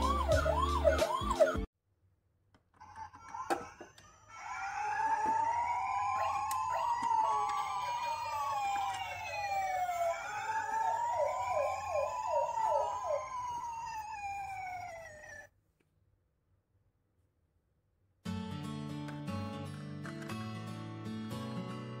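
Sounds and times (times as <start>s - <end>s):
toy sirens wailing: 0.0s - 1.7s, 2.8s - 15.5s.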